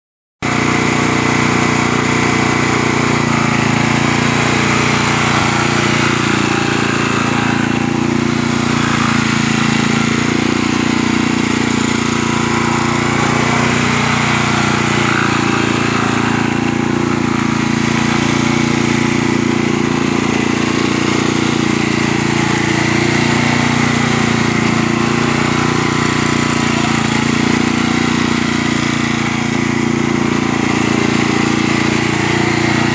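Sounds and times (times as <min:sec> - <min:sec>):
mower engine running: 0:00.4 - 0:32.9.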